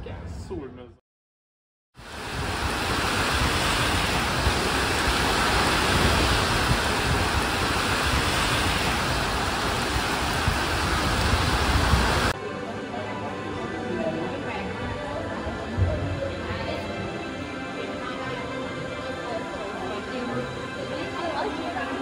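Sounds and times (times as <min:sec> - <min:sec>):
loud steady rushing noise: 0:02.0 - 0:12.4.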